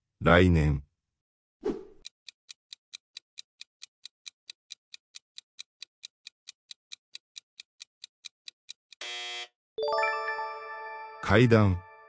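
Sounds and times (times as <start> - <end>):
fast clock timer ticking: 2.0 - 9.0.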